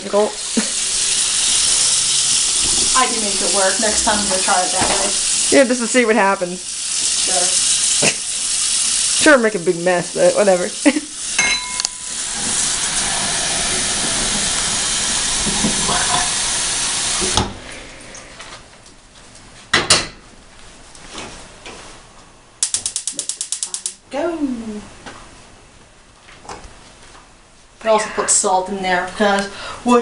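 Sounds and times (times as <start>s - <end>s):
tap running water into metal pot: 0.6s - 9.3s, 11.3s - 17.5s
gas burner igniter clicking: 22.6s - 24.0s.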